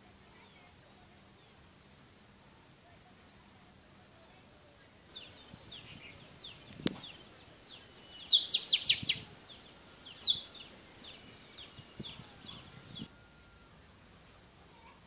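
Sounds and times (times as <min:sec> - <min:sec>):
soft bird chirps: 0:03.9 - 0:13.7.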